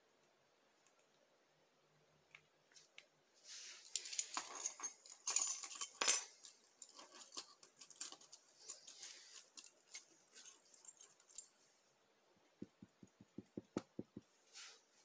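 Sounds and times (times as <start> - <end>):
keys clinking on floor: 3.8 - 11.6
keys jangling: 4.0 - 11.5.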